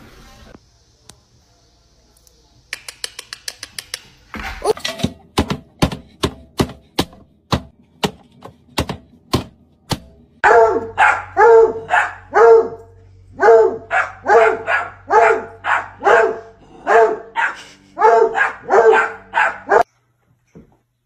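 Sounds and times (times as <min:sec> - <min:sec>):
dog barking: 0:10.4 - 0:19.9.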